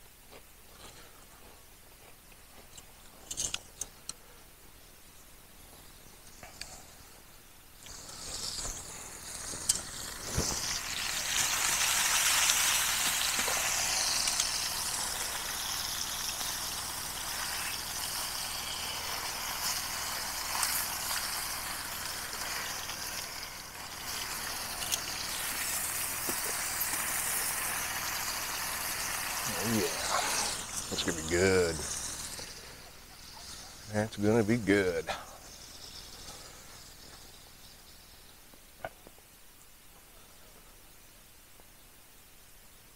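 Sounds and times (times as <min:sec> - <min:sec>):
steak sizzling in a pan: 0:07.8 - 0:38.4.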